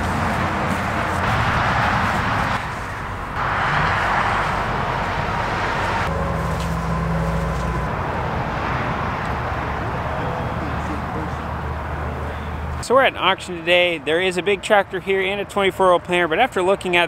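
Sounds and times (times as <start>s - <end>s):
vehicle engine running: 0.0s - 12.8s
outdoor noise: 0.0s - 17.0s.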